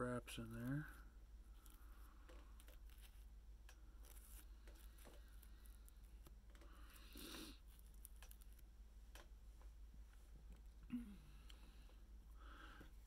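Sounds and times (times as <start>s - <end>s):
fingers clicking and rustling thread: 0.6s - 9.8s.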